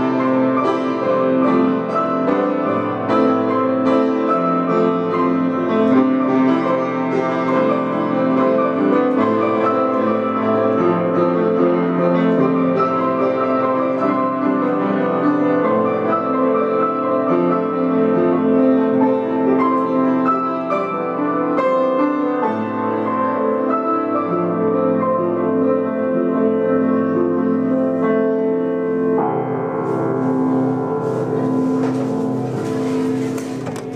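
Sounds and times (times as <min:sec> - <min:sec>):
piano duet: 0:00.0 - 0:33.9
rustling noise: 0:29.6 - 0:33.9.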